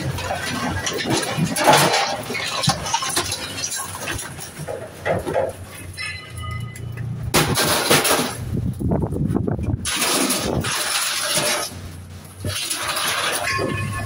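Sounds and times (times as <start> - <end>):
metal clattering knocks: 0.0 - 8.6
sheet metal scraping: 9.6 - 14.0.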